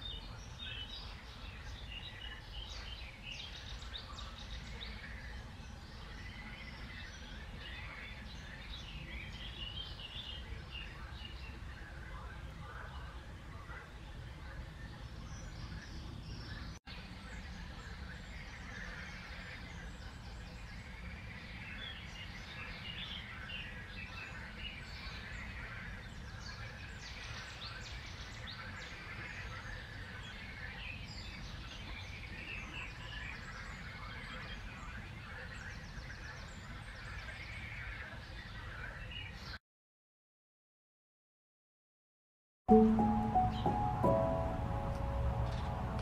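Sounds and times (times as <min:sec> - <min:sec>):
small birds chirping and trilling: 0:00.0 - 0:39.6
low steady rumble: 0:42.8 - 0:46.0.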